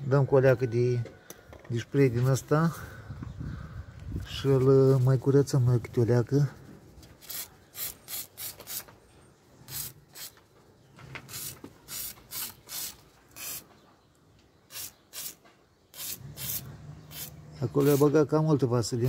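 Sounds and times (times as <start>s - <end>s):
aerosol spray hissing bursts: 11.3s - 13.6s, 14.7s - 15.4s, 16.0s - 18.0s.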